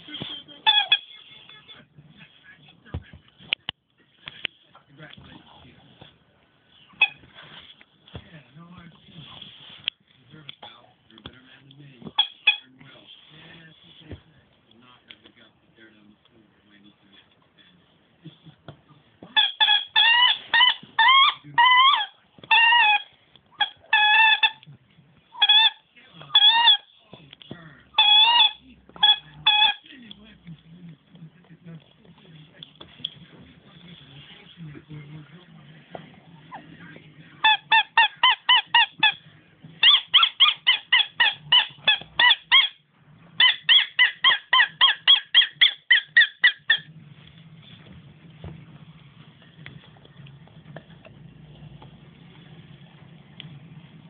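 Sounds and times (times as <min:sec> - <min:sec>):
dog squeaking: 0:00.4 - 0:01.2, 0:06.9 - 0:07.3, 0:12.2 - 0:12.8, 0:19.3 - 0:24.6, 0:25.3 - 0:27.0, 0:27.9 - 0:29.8, 0:37.4 - 0:39.2, 0:39.8 - 0:42.8, 0:43.4 - 0:47.0.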